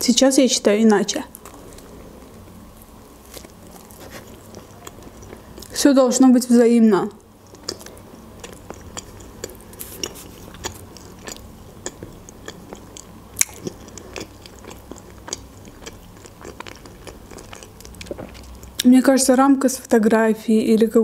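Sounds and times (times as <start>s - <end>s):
person chewing food: 1.4s - 5.8s, 7.2s - 18.8s.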